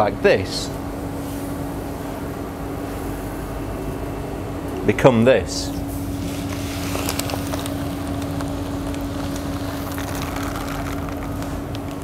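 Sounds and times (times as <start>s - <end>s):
factory machinery humming: 0.0s - 12.0s
plastic granules pouring into hopper: 6.2s - 12.0s.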